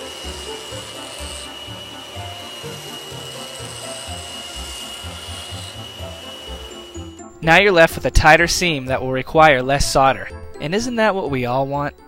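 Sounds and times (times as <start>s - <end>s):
ring saw grinding glass: 0.0s - 7.2s.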